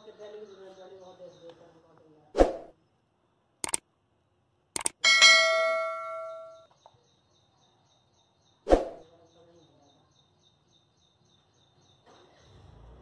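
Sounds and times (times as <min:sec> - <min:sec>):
mouse clicks: 0:03.6 - 0:03.8, 0:04.8 - 0:05.0
bright bell ding: 0:05.0 - 0:06.7.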